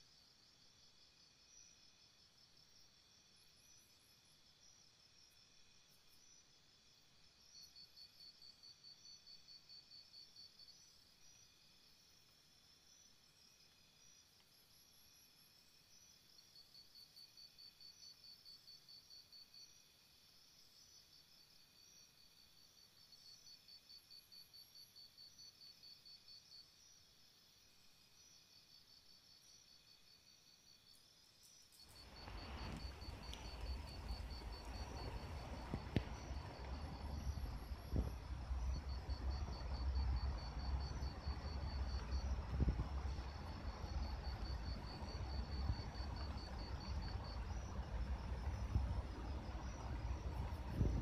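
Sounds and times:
insect chirping: 0:00.0 - 0:51.0
outdoor rushing noise with rumble: 0:31.9 - 0:51.0.

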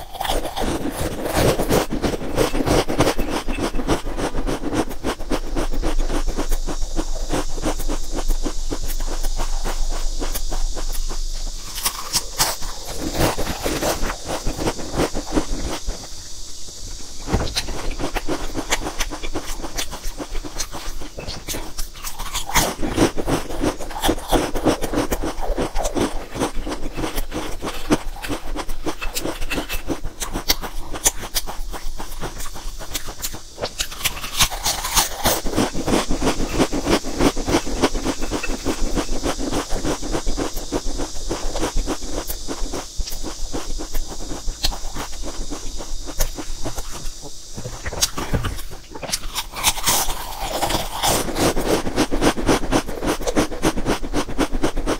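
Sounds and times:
crunching potato chips: 0:00.0 - 0:16.1, 0:17.1 - 0:54.9.

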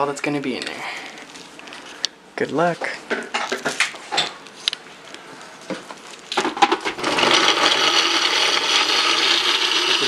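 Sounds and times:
blender running: 0:07.0 - 0:10.0.

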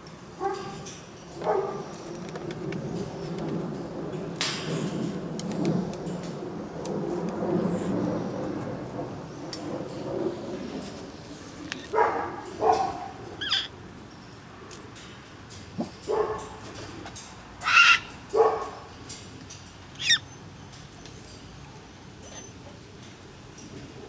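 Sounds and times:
cockatoos squawking: 0:13.4 - 0:13.7, 0:17.6 - 0:18.1, 0:20.0 - 0:20.2.

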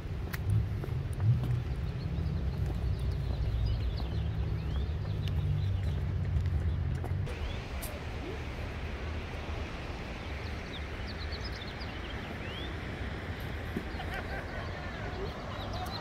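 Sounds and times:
steady hiss: 0:07.3 - 0:14.1.

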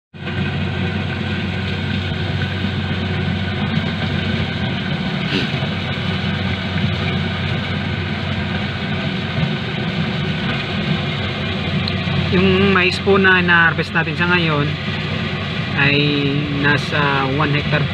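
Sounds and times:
harvester engine humming: 0:00.2 - 0:17.9.

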